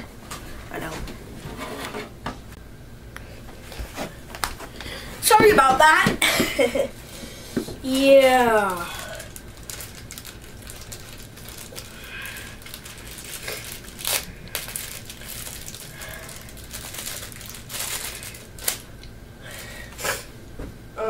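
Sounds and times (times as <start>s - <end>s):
plastic bag crinkling: 7.8s - 19.0s.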